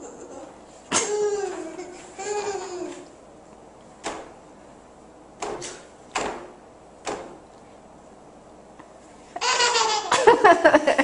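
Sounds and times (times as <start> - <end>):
baby laughing: 0.0 - 3.1, 9.4 - 10.4
sharp knocks: 4.0 - 4.4, 5.4 - 7.4.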